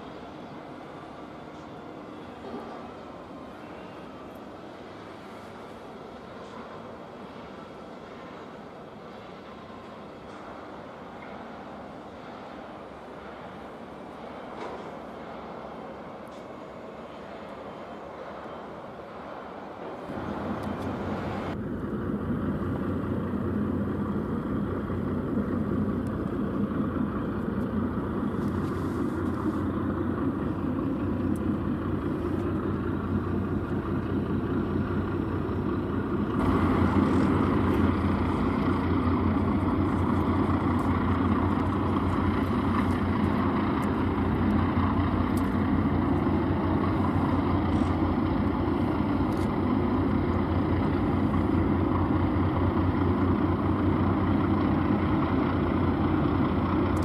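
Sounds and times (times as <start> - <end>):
ship diesel engines droning: 0.0 - 57.0.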